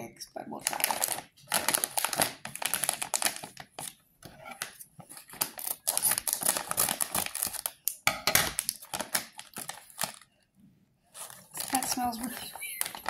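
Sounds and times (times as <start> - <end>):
plastic bag crinkling: 0.5 - 4.0, 4.6 - 10.4, 11.0 - 13.0
scissors cutting plastic: 4.5 - 10.2.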